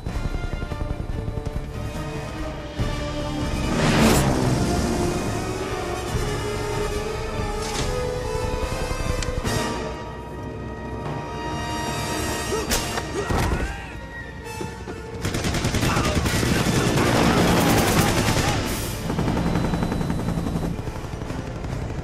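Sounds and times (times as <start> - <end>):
rapid automatic gunfire: 0.0 - 2.1, 15.2 - 22.0
dramatic film score music: 0.0 - 22.0.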